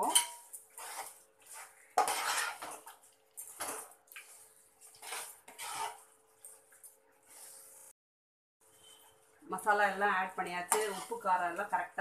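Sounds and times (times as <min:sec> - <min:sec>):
metal ladle scraping a pot: 0:00.0 - 0:03.8, 0:04.8 - 0:06.1, 0:10.6 - 0:11.4.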